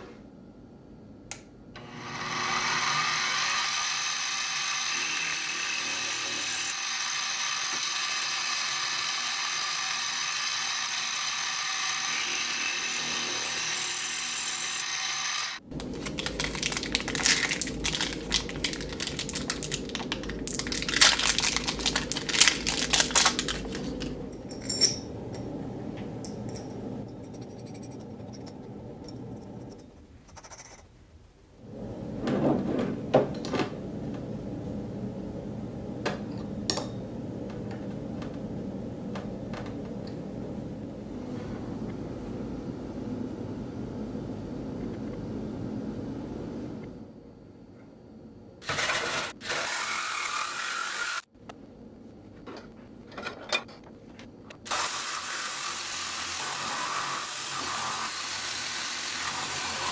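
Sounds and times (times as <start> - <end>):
milling machine cutting metal: 1.8 - 15.6
plastic bag crinkling: 15.7 - 24.2.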